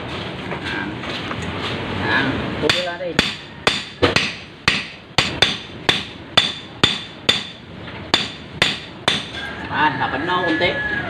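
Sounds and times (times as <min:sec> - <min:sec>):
hammer striking metal rod: 0:02.7 - 0:09.4.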